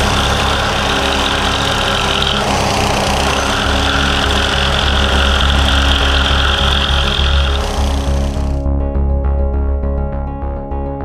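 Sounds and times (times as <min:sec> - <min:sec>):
engine running steadily: 0:00.0 - 0:08.6.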